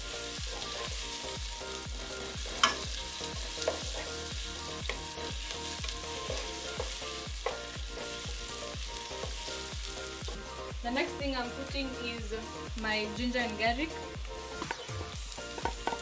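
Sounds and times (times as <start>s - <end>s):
onions sizzling in oil: 0.0s - 16.0s
wooden spoon knocking pot: 15.6s - 16.0s.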